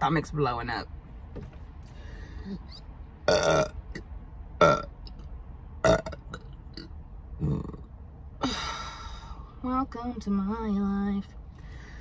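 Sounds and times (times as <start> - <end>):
woman burping: 3.3 - 3.7, 4.6 - 4.9
woman speaking: 9.6 - 11.3.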